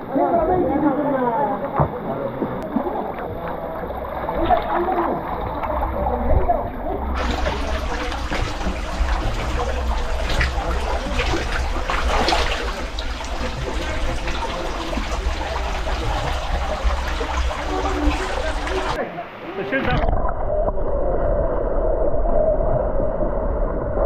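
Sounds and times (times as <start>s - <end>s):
water splashing and sloshing: 0.0s - 24.0s
water dripping into a pool: 1.7s - 19.0s.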